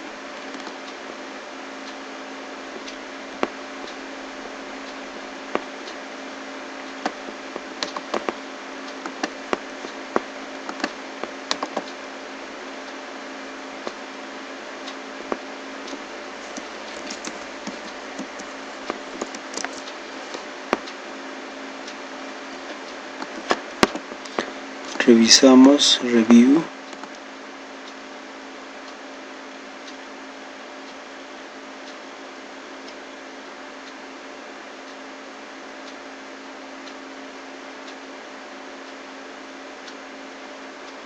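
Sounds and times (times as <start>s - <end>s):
recording hiss and hum: 0.0s - 41.0s
computer mouse clicks: 0.4s - 0.8s, 7.0s - 8.4s, 9.0s - 12.0s, 15.3s - 21.0s, 23.2s - 25.0s
keyboard keys clicking: 7.0s - 8.4s, 9.0s - 11.9s, 16.4s - 20.9s, 23.2s - 25.0s.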